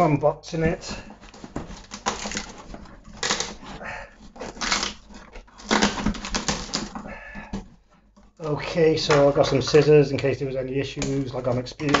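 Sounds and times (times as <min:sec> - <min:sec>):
packing paper rustling: 0:00.0 - 0:10.1
cardboard and tape tearing: 0:00.8 - 0:07.3.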